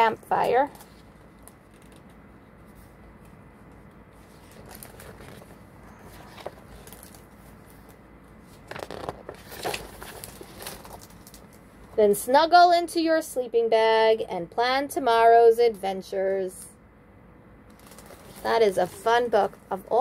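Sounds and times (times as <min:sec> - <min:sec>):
book pages rustling: 0:00.7 - 0:11.6, 0:17.7 - 0:19.3.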